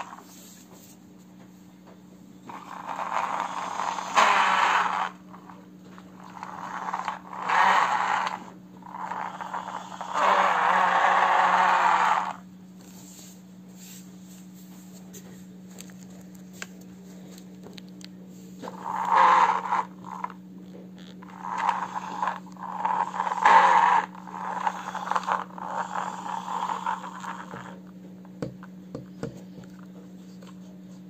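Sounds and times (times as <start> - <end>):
toy tracks scraping across floor: 0.0 - 0.7, 2.5 - 12.4, 18.6 - 20.4, 21.0 - 27.8.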